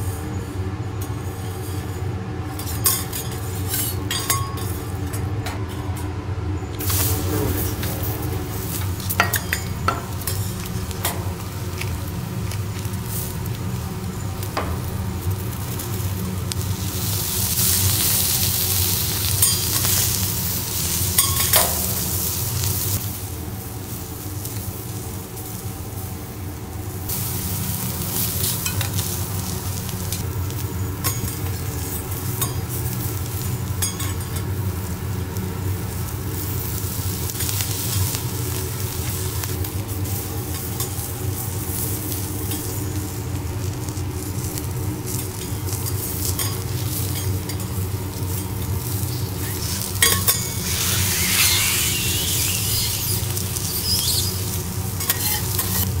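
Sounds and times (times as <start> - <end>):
seafood sizzling on a griddle: 0.0 - 5.1, 6.8 - 56.0
steady low hum: 0.0 - 53.6
metal spatulas clicking and scraping: 55.0 - 55.9.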